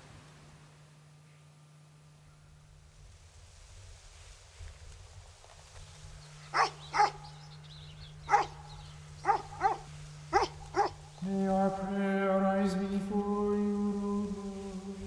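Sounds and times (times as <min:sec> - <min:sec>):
dog barking: 0:06.5 - 0:07.2, 0:08.3 - 0:11.0.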